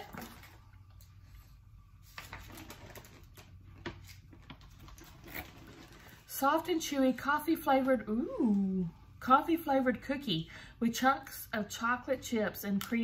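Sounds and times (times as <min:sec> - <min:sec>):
low room hum: 0:00.0 - 0:13.0
snack packaging rustling: 0:02.0 - 0:06.3.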